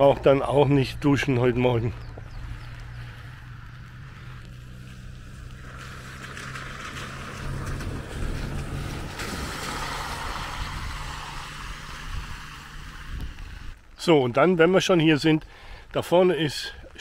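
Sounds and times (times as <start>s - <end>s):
low engine hum: 0.0s - 13.9s
tyres hissing through water: 2.4s - 13.9s.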